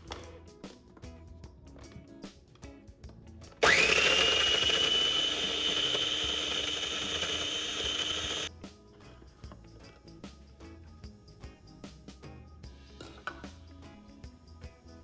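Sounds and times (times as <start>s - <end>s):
food processor motor whining: 3.6s - 8.5s.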